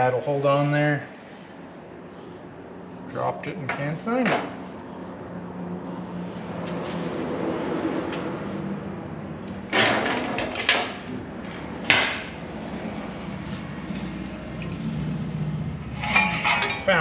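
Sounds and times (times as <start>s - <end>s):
workshop background noise: 1.1s - 8.4s, 9.4s - 12.4s, 13.2s - 17.0s
sharp knocks and clatters: 3.6s - 4.6s, 9.6s - 12.4s.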